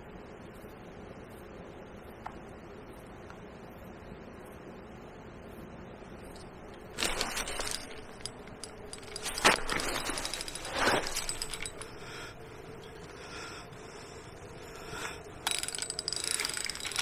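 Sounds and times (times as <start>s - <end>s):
fishing rod rustling and clatter: 6.3s - 17.0s
reel ticking rapidly: 15.4s - 17.0s.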